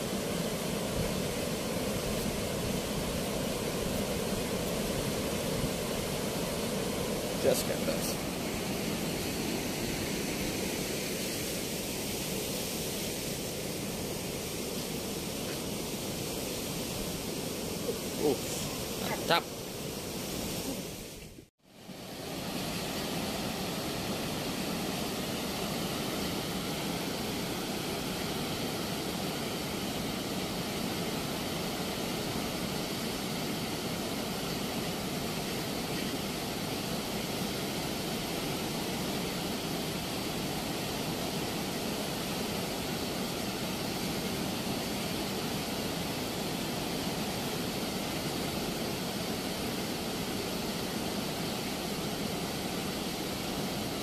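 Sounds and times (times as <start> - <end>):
river water rushing through sluice: 0.0 - 54.0.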